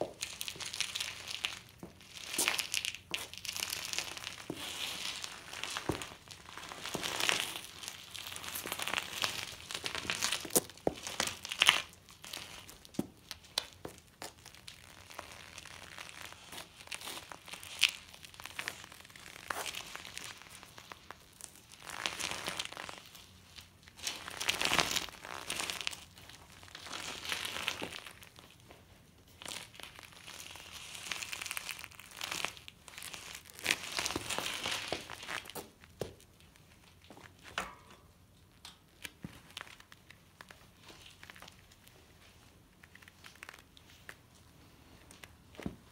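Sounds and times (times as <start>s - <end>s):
bike tyre crunching on gritty concrete: 0.0s - 23.1s, 23.9s - 28.4s, 30.4s - 36.4s.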